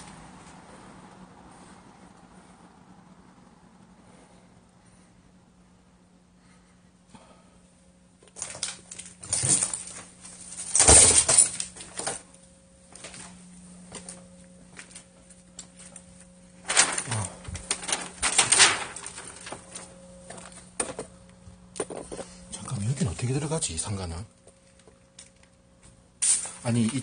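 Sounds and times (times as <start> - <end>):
faint steady hum: 0.0 - 27.0
plastic rustling and crunching: 8.4 - 12.2, 14.0 - 21.1.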